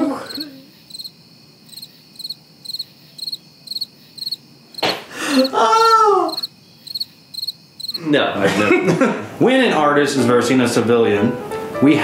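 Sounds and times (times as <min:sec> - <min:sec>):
crickets chirping: 0:00.0 - 0:08.8.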